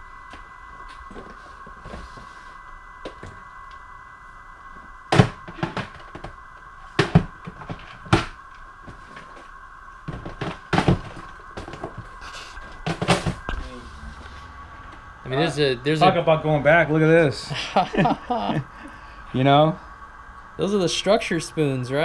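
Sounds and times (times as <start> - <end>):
steady high hum: 0.0 - 22.0.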